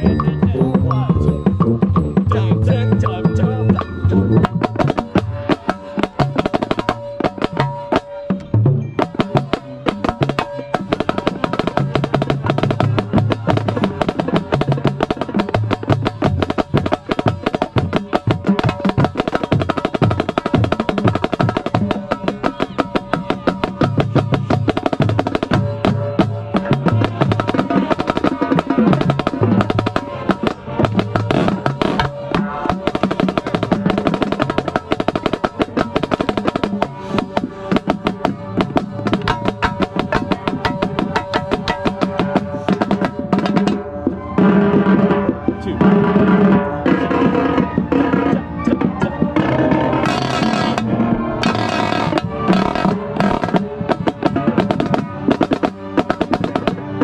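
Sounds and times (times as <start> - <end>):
low bass pulses: 0.0 - 4.7
snare drum strokes and rolls: 1.0 - 57.0.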